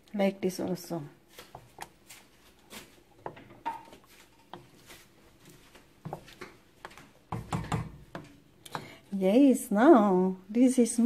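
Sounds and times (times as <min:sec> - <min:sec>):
utensil stirring soup in pot: 0:01.3 - 0:09.4
utensil knocking pot: 0:07.3 - 0:09.0.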